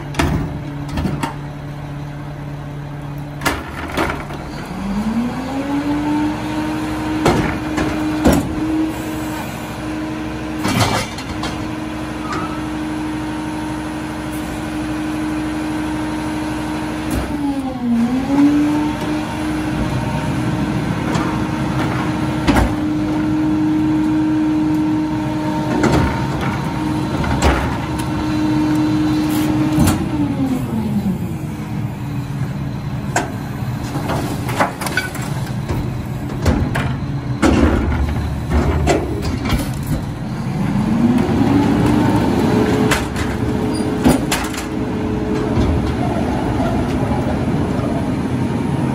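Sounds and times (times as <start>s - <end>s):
garbage truck engine revving: 0.0s - 48.9s
metal clanks and bangs: 10.6s - 11.7s, 33.1s - 40.2s, 42.8s - 47.4s.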